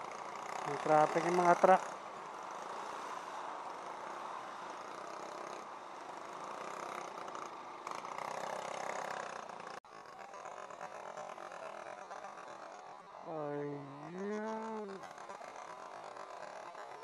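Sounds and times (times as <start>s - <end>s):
heavy traffic: 0.0s - 9.9s, 10.6s - 17.0s
motorcycle engine: 0.0s - 17.0s.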